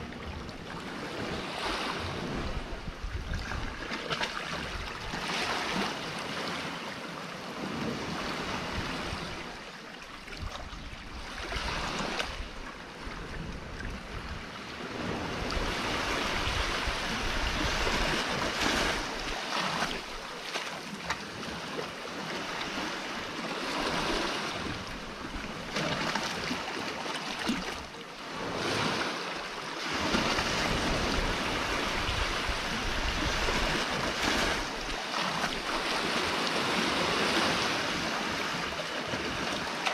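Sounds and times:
sea surf breaking on rocks: 22.4s - 39.9s.

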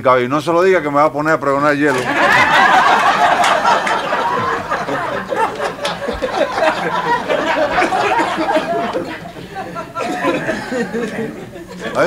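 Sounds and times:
scattered clapping: 1.9s - 9.3s
audience laughing: 1.9s - 12.0s.

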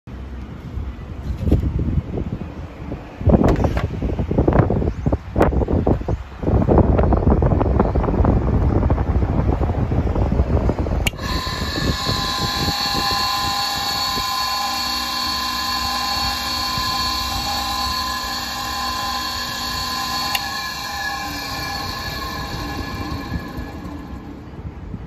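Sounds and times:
mixer motor whine: 11.0s - 25.0s.

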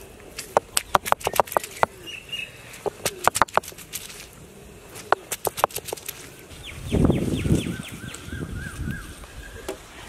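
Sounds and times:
garlic cloves cracking under stone: 0.4s - 1.9s.

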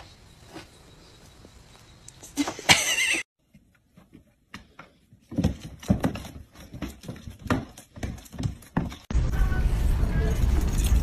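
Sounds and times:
cats play-fighting on wooden floor: 3.4s - 9.1s.

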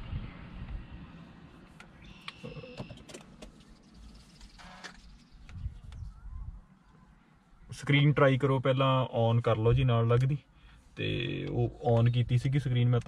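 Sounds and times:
low rumble: 0.0s - 1.4s.

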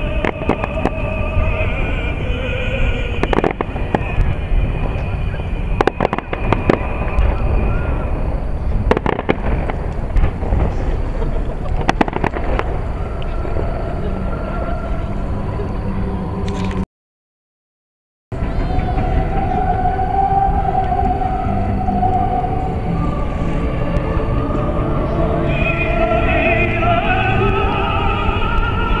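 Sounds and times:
music over loudspeakers: 0.0s - 8.3s, 18.4s - 29.0s
fireworks bursting and crackling: 0.0s - 14.0s
low rumble: 0.0s - 16.8s, 18.3s - 29.0s.

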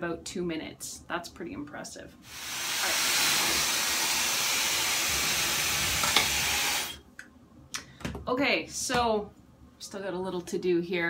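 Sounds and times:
hair dryer blowing: 2.3s - 7.0s.

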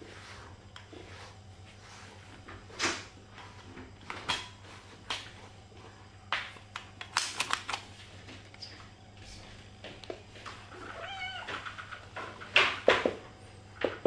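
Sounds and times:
brush scraping strokes: 0.0s - 6.0s
low room hum: 0.0s - 14.0s.

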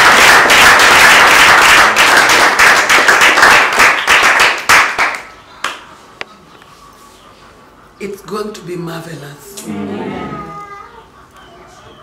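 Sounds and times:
people clapping: 0.0s - 5.9s.

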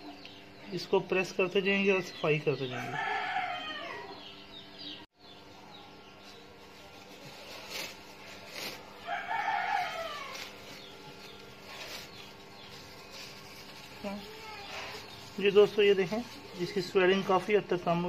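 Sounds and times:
rooster crowing: 2.7s - 4.4s, 9.0s - 10.9s.

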